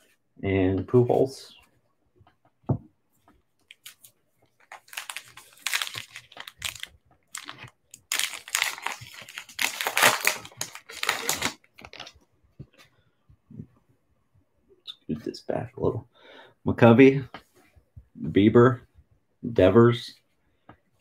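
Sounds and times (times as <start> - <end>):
card pack wrapper crinkling: 3.7 - 12.2.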